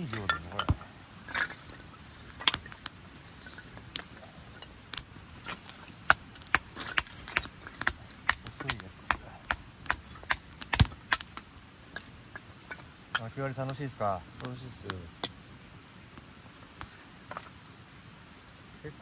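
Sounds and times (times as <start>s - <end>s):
campfire crackling and popping: 0.0s - 19.0s
hatchet striking kindling: 6.1s - 11.4s.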